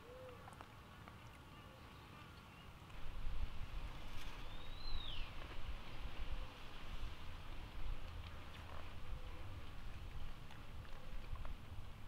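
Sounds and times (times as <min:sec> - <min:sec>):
wind rumble on microphone: 0:03.0 - 0:12.0
forest birds calling: 0:04.0 - 0:05.4
bird whistle: 0:04.4 - 0:05.3.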